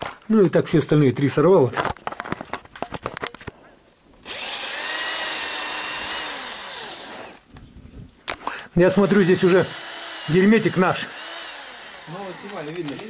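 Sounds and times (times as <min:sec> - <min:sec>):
cordless drill whining: 0:04.2 - 0:07.5, 0:09.0 - 0:13.0.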